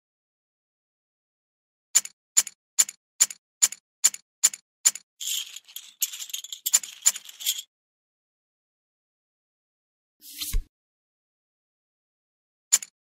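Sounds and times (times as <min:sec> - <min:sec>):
poker chips clattering: 0:05.2 - 0:07.7.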